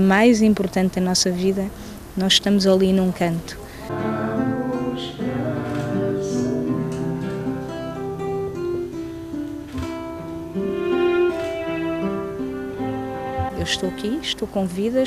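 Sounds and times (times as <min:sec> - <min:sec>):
bowed violin notes: 0:03.9 - 0:08.2, 0:10.1 - 0:15.0
guitar chords: 0:03.9 - 0:14.7.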